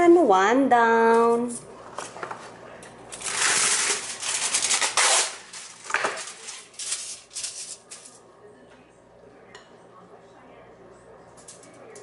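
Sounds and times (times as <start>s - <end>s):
foil tearing from the roll: 3.1s - 8.1s
foil crinkling and rustling: 3.1s - 8.2s.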